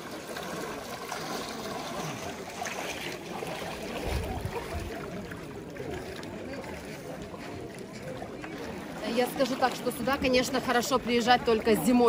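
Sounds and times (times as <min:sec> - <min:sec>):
water sloshing and trickling: 0:00.0 - 0:12.0
distant murmur of voices: 0:00.8 - 0:09.8.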